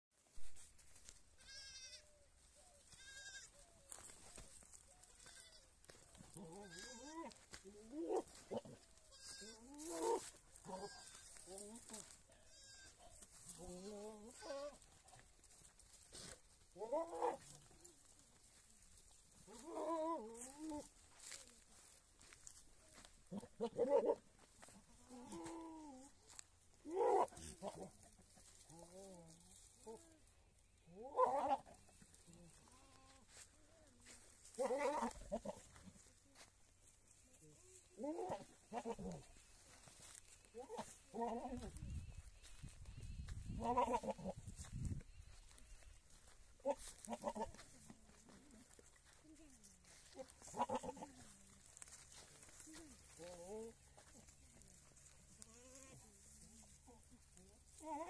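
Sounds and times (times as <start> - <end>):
goats bleating: 1.4 - 2.2, 2.8 - 4.1, 5.0 - 15.2, 16.2 - 18.2, 19.4 - 21.4, 22.2 - 30.0, 30.9 - 33.4, 34.0 - 35.9, 38.0 - 39.4, 40.0 - 41.8, 43.5 - 44.7, 46.6 - 47.9, 50.0 - 51.9, 55.3 - 56.8.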